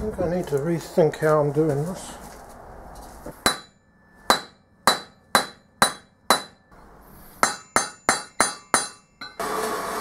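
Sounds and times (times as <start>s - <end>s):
hammer striking steel rod: 3.3s - 6.8s, 7.4s - 9.4s.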